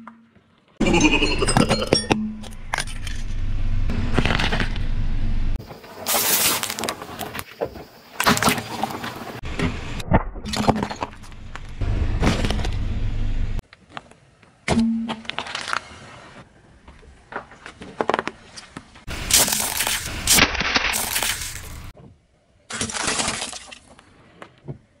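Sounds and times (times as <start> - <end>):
car tyre crushing objects: 2.5 - 5.0, 5.6 - 13.1, 17.3 - 22.0
plastic packaging breaking: 19.2 - 21.9
ceramic cracking and crunching: 19.3 - 21.9.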